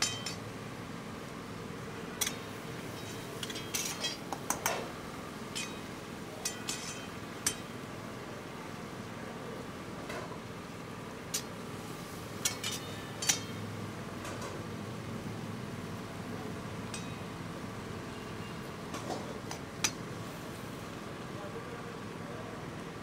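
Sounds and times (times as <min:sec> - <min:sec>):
metal spatula clinking on a pan: 0:00.0 - 0:00.4, 0:05.5 - 0:07.7, 0:12.4 - 0:13.6, 0:16.9 - 0:17.3
steady background noise: 0:00.0 - 0:23.0.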